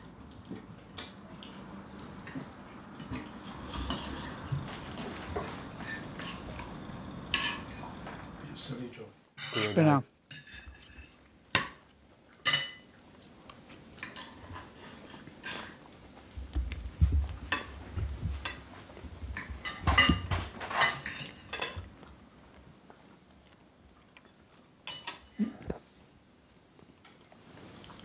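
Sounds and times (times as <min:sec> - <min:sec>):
cutlery clinking on plates: 0:07.2 - 0:08.3, 0:09.4 - 0:12.9, 0:19.4 - 0:21.9, 0:24.8 - 0:25.3.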